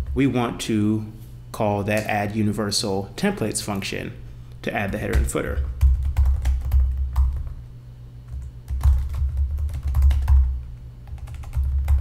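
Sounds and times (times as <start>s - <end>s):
typing on computer keyboard: 5.1s - 7.6s, 8.3s - 12.0s.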